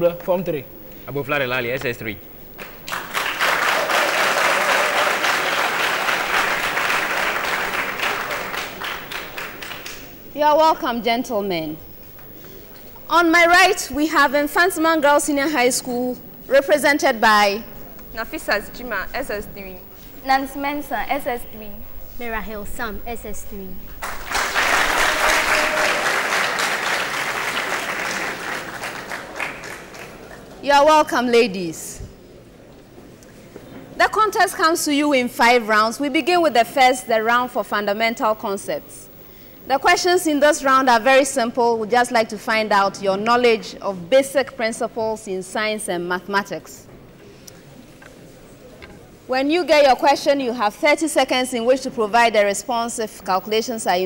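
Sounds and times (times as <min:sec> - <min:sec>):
audience applauding: 0:02.6 - 0:10.2, 0:23.9 - 0:30.6.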